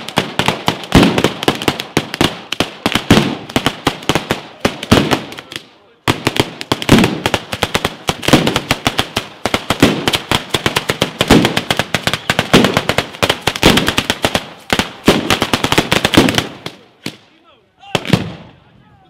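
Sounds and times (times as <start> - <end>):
firecrackers rattling: 0.0 - 18.6
deep firecracker reports: 4.3 - 7.2.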